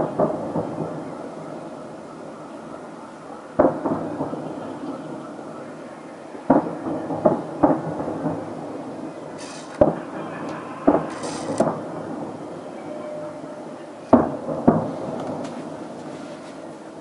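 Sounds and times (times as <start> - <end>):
distant firework booms: 0.0 - 2.8, 3.5 - 5.8, 6.4 - 12.7, 14.1 - 16.1
firework hiss: 8.2 - 12.6.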